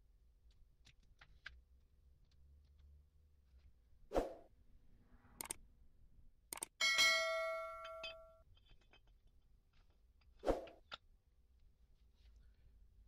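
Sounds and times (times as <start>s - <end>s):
clicks: 5.4s - 5.6s, 6.5s - 6.8s
notification bell chime: 6.8s - 8.4s.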